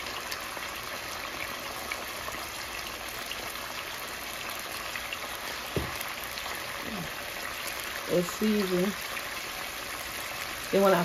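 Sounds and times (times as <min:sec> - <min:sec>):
chicken sizzling in hot oil: 0:00.0 - 0:11.0
light knock: 0:05.8 - 0:06.0.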